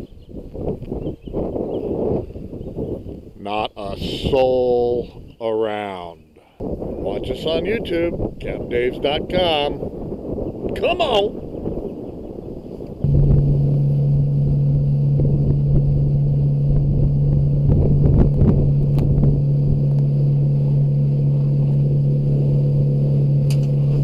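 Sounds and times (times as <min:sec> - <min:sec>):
wind and water noise: 0:06.6 - 0:24.0
boat engine droning: 0:13.0 - 0:24.0.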